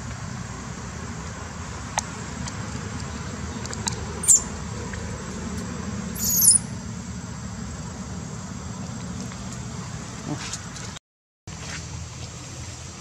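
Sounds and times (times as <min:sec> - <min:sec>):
baby monkey squeaking: 0:04.2 - 0:04.5, 0:06.2 - 0:06.7.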